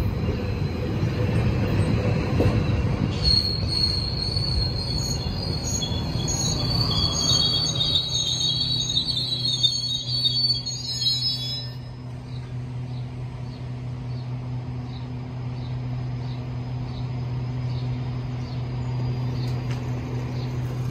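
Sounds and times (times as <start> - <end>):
train wheels squealing: 0.0 - 12.4
train humming: 0.0 - 20.9.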